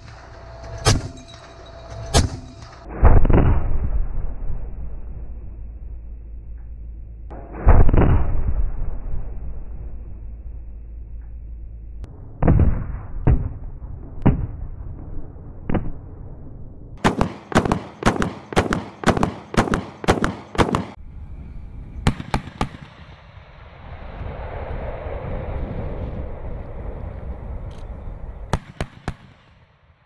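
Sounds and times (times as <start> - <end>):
armored vehicle driving: 0.0 - 12.1
autocannon firing: 17.0 - 21.0.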